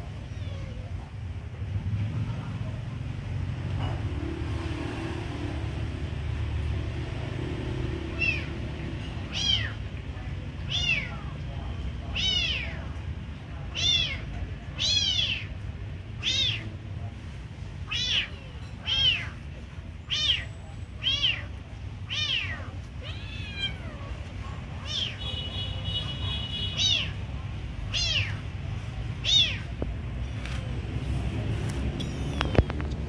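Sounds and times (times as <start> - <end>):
kitten meowing: 0.1 - 1.0, 8.1 - 8.5, 9.3 - 9.8, 10.7 - 11.3, 12.1 - 13.0, 13.6 - 15.5, 16.2 - 16.7, 17.8 - 19.4, 20.0 - 24.2, 24.8 - 25.2, 26.8 - 27.2, 27.9 - 28.5, 29.2 - 29.8.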